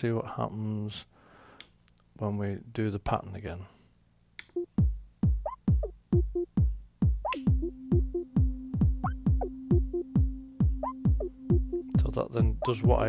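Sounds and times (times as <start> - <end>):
drum machine kick drum: 4.6 - 13.0.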